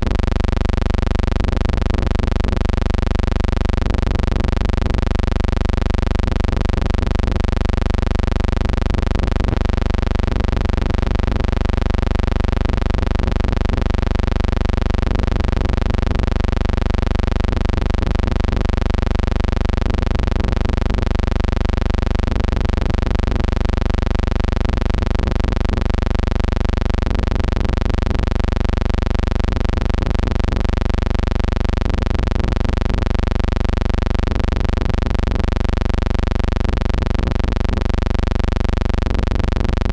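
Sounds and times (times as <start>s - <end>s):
low buzzing hum: 0.0s - 39.9s.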